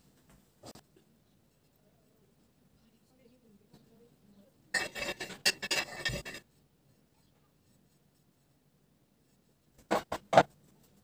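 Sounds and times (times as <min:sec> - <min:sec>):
palette knife scraping cream: 0:04.8 - 0:06.5.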